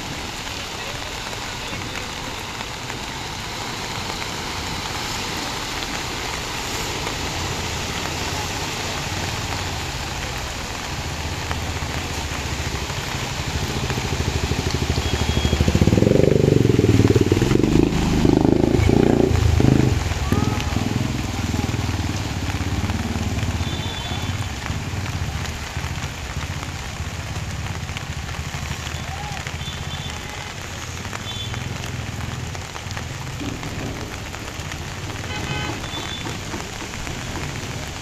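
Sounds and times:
heavy rain: 0:00.0 - 0:38.0
motorcycle splashing through water: 0:00.0 - 0:38.0
running floodwater: 0:00.0 - 0:38.0
motorcycle engine: 0:12.2 - 0:28.8.

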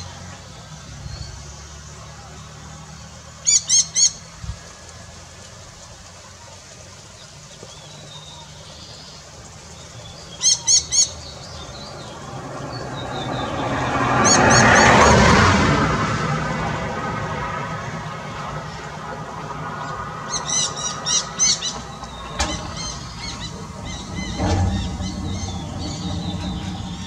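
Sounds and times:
low steady rumble: 0:11.0 - 0:27.0
rush of noise: 0:11.7 - 0:27.0
parakeets screeching: 0:19.8 - 0:27.0.

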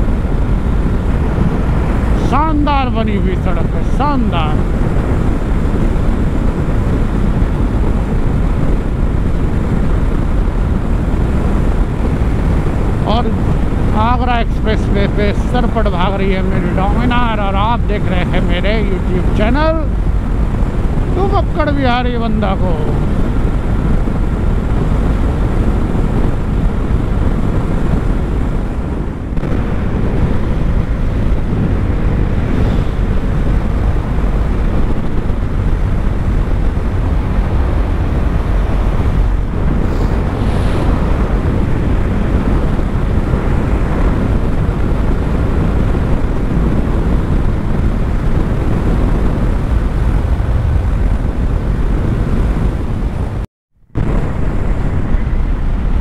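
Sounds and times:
road noise: 0:00.0 - 0:56.0
wind buffeting microphone: 0:00.0 - 0:56.0
motorcycle engine: 0:22.7 - 0:56.0.

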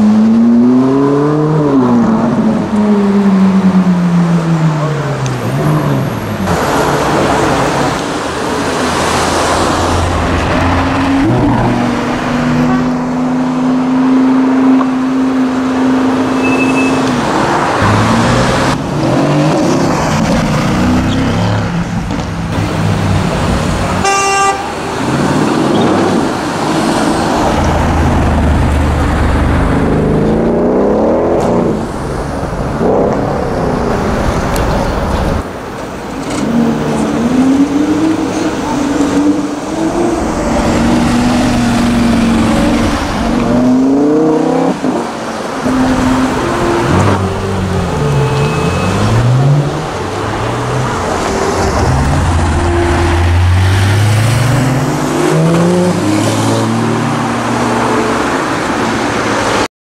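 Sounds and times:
sports cars revving past: 0:00.0 - 0:24.0, 0:36.1 - 0:59.7
car horn toot: 0:16.3 - 0:17.2, 0:24.0 - 0:25.0, 0:47.9 - 0:49.4.

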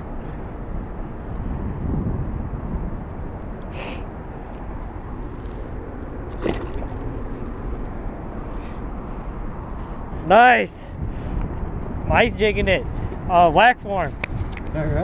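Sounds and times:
low outdoor rumble: 0:00.0 - 0:15.0
fish splashing in water: 0:06.3 - 0:07.3.

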